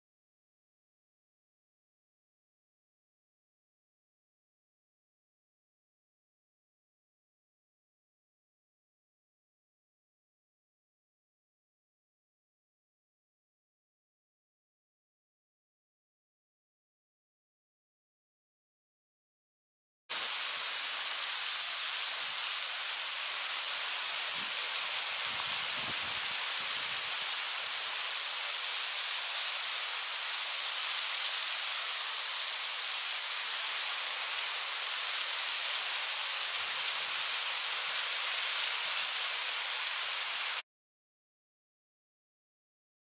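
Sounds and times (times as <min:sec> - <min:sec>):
small waterfall splashing on rocks: 0:20.1 - 0:40.6.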